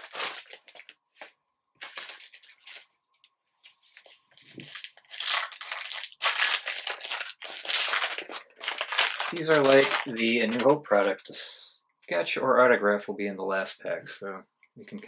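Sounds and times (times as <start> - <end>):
foil wrapper crinkling and tearing: 0.0 - 1.0, 1.8 - 2.9, 3.9 - 11.5.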